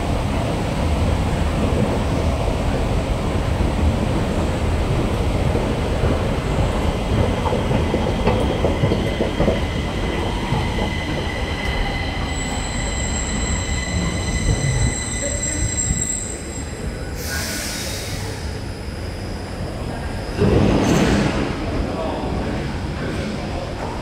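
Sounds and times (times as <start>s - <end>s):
train low rumble: 0.0s - 24.0s
train high whining tones: 9.0s - 19.7s.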